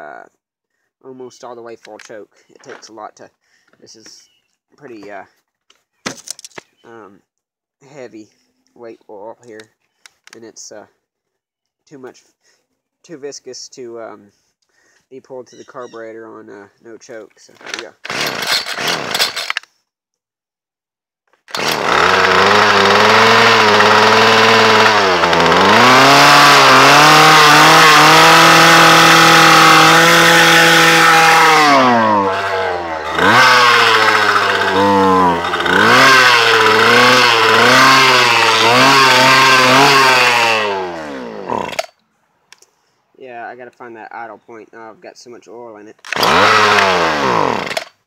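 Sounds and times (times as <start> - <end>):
string trimmer engine running unevenly: 17.6 - 19.5, 21.5 - 41.9, 46.2 - 47.9
short rattling burst: 17.6 - 19.6, 21.4 - 28.0, 28.6 - 41.9.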